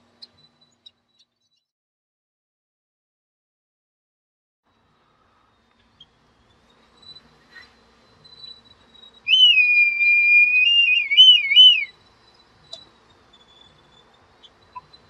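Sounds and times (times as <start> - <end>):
kite calling with thin whistle: 9.3 - 12.0.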